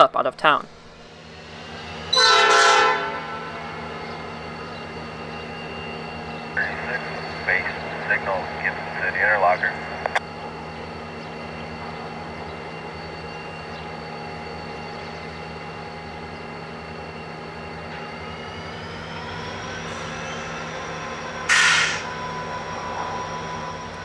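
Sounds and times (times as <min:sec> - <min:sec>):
diesel locomotive engine drone: 0:00.0 - 0:24.0
loud noisy burst: 0:21.4 - 0:22.2.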